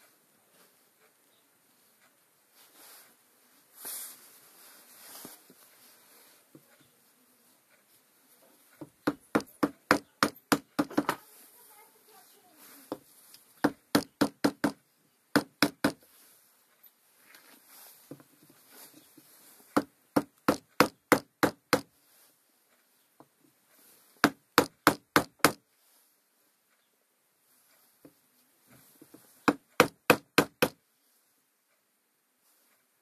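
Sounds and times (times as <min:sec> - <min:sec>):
hammer knocking on wooden block: 0:08.8 - 0:11.2, 0:13.6 - 0:16.0, 0:19.8 - 0:21.9, 0:24.2 - 0:25.6, 0:29.4 - 0:30.8.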